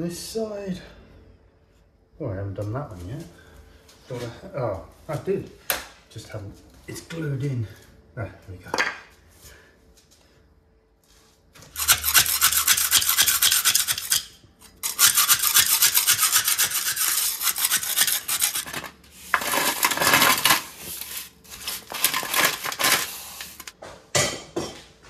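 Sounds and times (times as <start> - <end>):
metal scraper rasping on concrete: 11.6 - 23.7.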